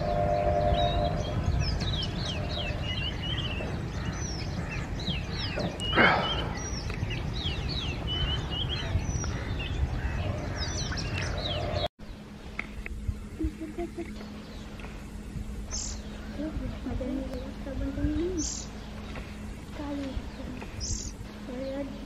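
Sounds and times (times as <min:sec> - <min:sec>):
bird singing whistled notes: 0:00.0 - 0:04.5, 0:17.4 - 0:19.1
low background rumble: 0:00.0 - 0:22.0.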